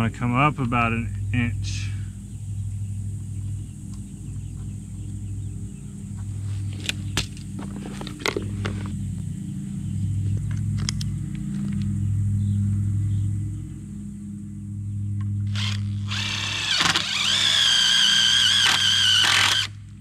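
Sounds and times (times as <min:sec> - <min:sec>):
low mechanical hum: 0:00.0 - 0:20.0
hand tools clicking and clattering: 0:06.7 - 0:09.0.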